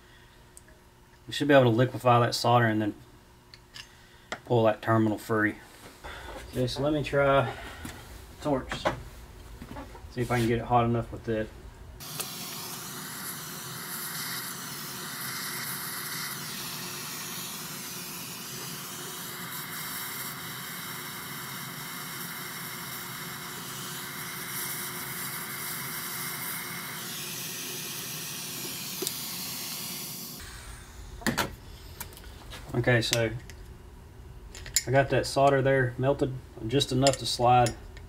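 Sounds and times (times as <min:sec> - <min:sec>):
hand torch flame hissing: 0:12.0 - 0:32.5.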